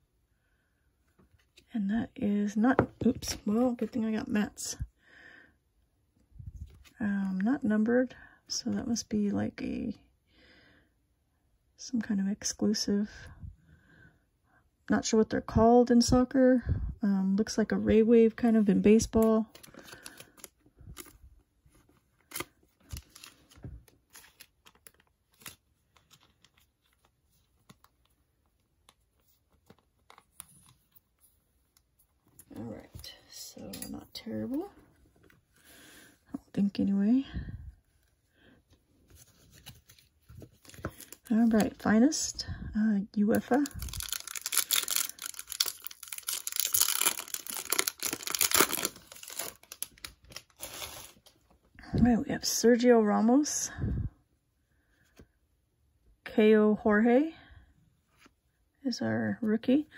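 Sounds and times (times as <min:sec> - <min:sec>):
plastic sleeve rustling: 0:18.4 - 0:33.2, 0:38.4 - 0:42.3, 0:43.3 - 0:51.6
foil wrapper tearing and crinkling: 0:43.4 - 0:51.3.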